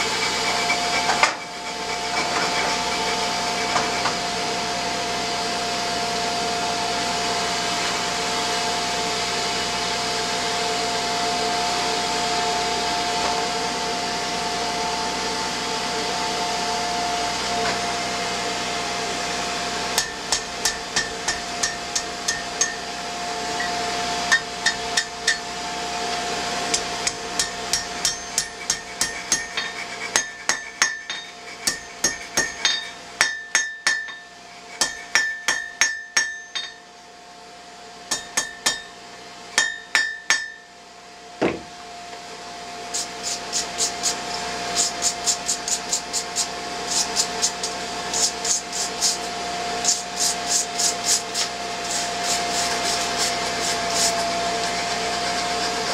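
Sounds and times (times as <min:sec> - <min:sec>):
hammer striking hot steel on anvil: 0:00.0 - 0:04.2, 0:20.0 - 0:22.9, 0:23.5 - 0:25.5, 0:26.7 - 0:36.9, 0:38.1 - 0:39.0, 0:39.6 - 0:40.8.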